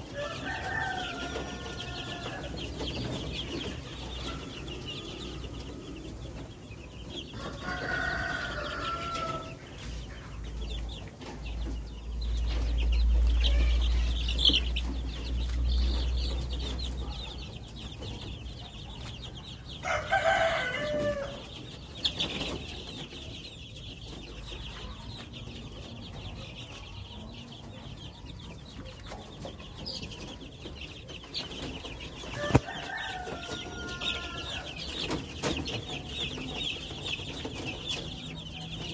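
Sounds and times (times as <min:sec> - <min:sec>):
chicks peeping: 0:00.0 - 0:38.9
chicken calling: 0:32.2 - 0:36.5.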